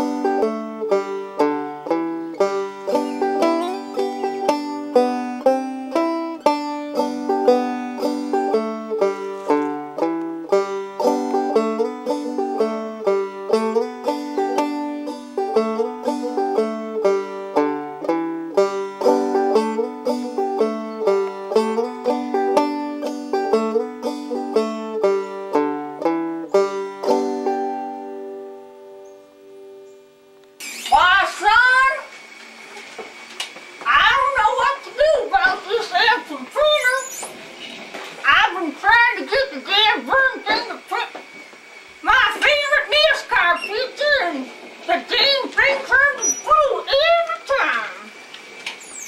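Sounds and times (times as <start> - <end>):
fast picked banjo tune: 0.0 - 28.3, 33.9 - 37.0.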